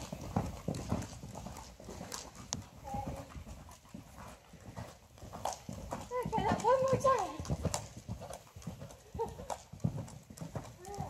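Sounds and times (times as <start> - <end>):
horse hoofbeats on sand: 0.0 - 11.0.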